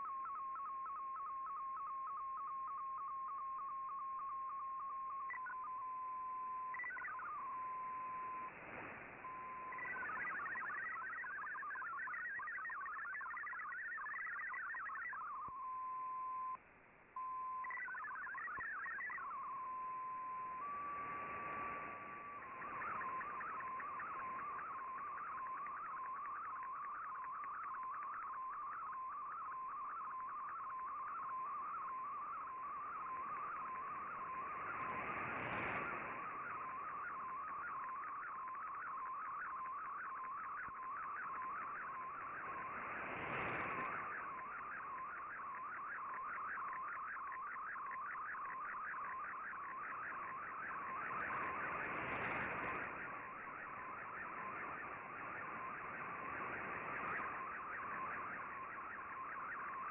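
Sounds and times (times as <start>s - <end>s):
bursts of static: 0.0s - 16.1s, 17.2s - 59.9s
warbling radio data tone: 0.0s - 16.6s, 17.2s - 59.9s
radio band hiss: 17.9s - 59.9s.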